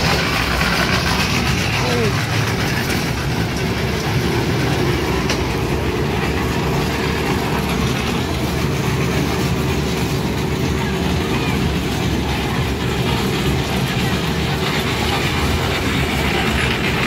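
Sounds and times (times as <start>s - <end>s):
train wheels on rails: 0.0s - 17.0s.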